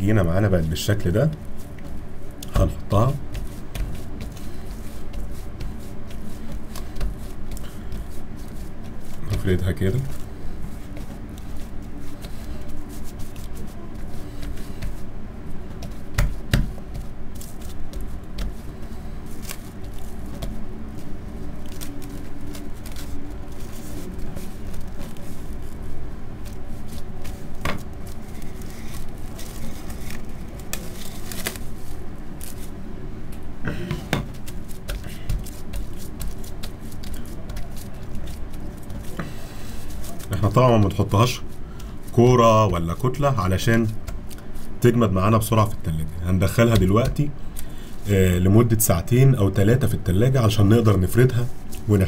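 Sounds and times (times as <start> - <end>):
steady background hum: 0.0 - 52.0
hands pressing dough: 0.2 - 32.7, 33.7 - 47.4
cling film crinkling: 15.7 - 32.8, 34.3 - 44.9.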